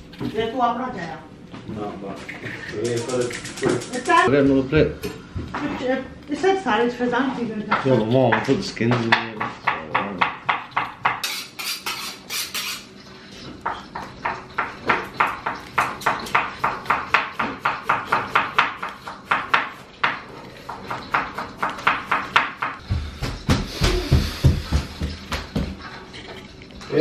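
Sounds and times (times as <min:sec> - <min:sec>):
knife chopping on wooden board: 0:08.3 - 0:12.7, 0:13.6 - 0:25.8
vegetable peeler scraping potato: 0:11.2 - 0:12.9.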